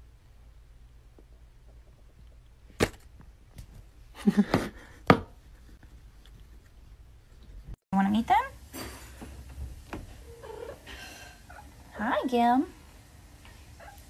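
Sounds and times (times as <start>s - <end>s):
plastic cup knocking and clacking: 4.4s - 5.4s.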